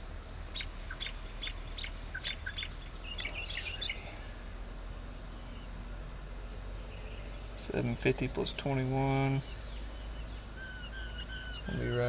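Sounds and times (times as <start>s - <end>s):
steady low hum: 0.0s - 12.0s
songbird chirping and warbling: 0.5s - 12.0s.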